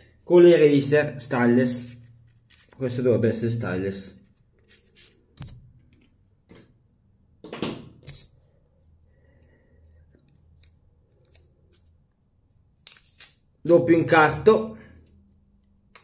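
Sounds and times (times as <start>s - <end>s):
paper rustling: 1.7s - 3.0s.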